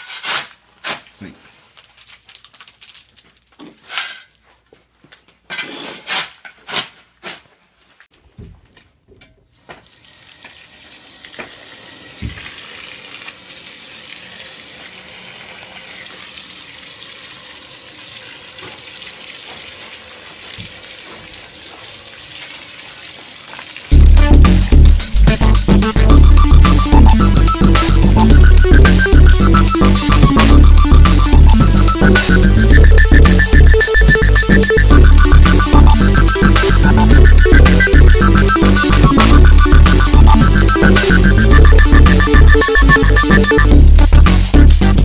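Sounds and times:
footsteps on rubble: 0:00.6 - 0:05.5
hose spraying water on gravel: 0:09.6 - 0:24.8
loud music: 0:23.9 - 0:45.0.

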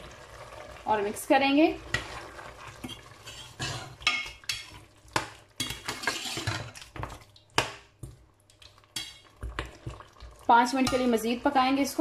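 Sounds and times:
metal spoon scraping a steel pot: 0:02.8 - 0:04.6, 0:05.6 - 0:06.8.

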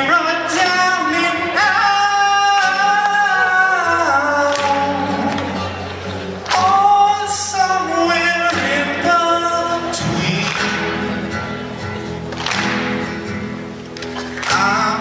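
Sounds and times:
man singing into microphone: 0:00.0 - 0:05.8, 0:06.5 - 0:11.2, 0:14.5 - 0:15.0
strummed acoustic guitar: 0:00.0 - 0:15.0.

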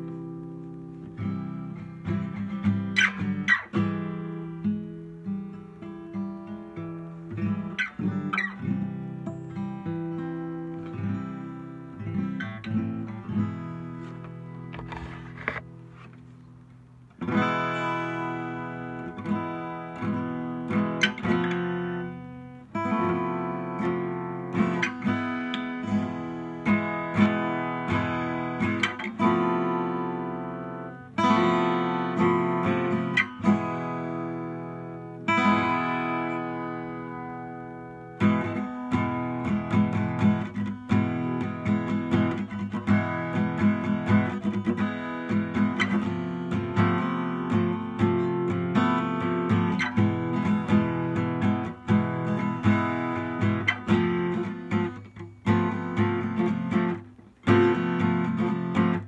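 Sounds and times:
acoustic guitar strumming and plucking: 0:00.0 - 0:59.0.

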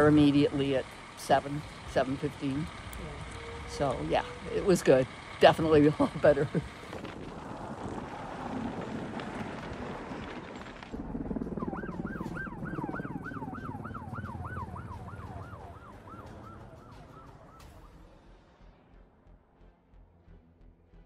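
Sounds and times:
low rumble: 0:00.0 - 0:21.0
siren yelping: 0:02.9 - 0:05.0, 0:11.2 - 0:18.0.

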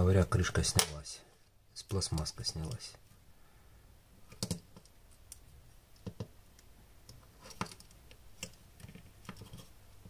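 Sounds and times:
small plastic clicks and taps: 0:06.0 - 0:09.5.

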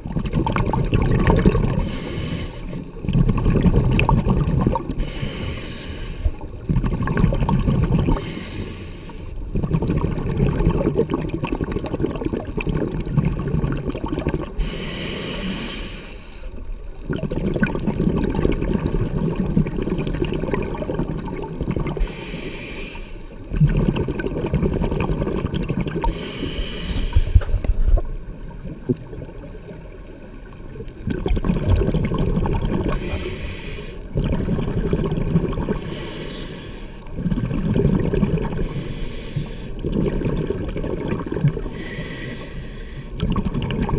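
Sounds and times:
bubbling exhalations: 0:00.0 - 0:05.6, 0:06.2 - 0:08.6, 0:09.5 - 0:15.8, 0:17.0 - 0:22.4, 0:23.5 - 0:29.4, 0:31.0 - 0:36.4, 0:37.1 - 0:43.9
regulator inhalation hiss: 0:01.8 - 0:02.9, 0:05.0 - 0:06.5, 0:08.1 - 0:09.4, 0:14.6 - 0:16.6, 0:22.0 - 0:23.4, 0:26.1 - 0:27.8, 0:33.0 - 0:34.1, 0:35.8 - 0:37.1, 0:38.6 - 0:39.8, 0:41.7 - 0:43.2.

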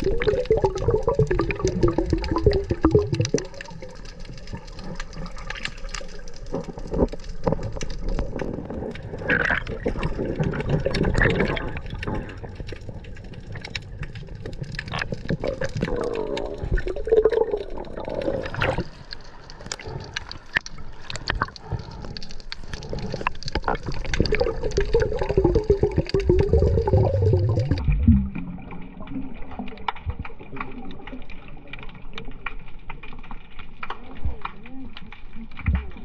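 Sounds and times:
water gurgling and sloshing: 0:00.0 - 0:36.0
small clicks: 0:02.2 - 0:17.0.

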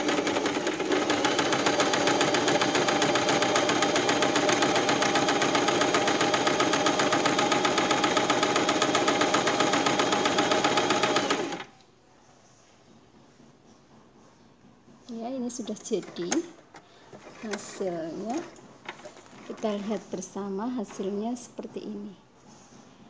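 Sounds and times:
sewing machine stitching: 0:00.0 - 0:11.7, 0:17.2 - 0:19.8.

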